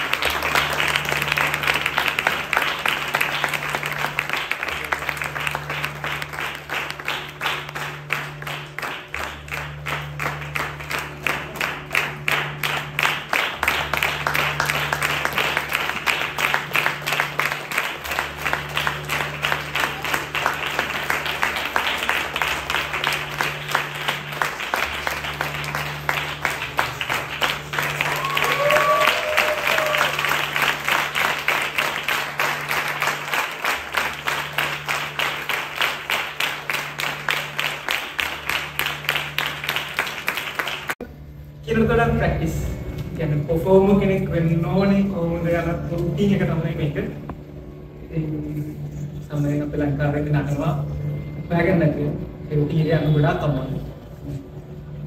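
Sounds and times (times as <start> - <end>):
music with low bass notes: 0.0 - 28.6, 41.0 - 55.0
audience clapping in unison: 0.0 - 41.1.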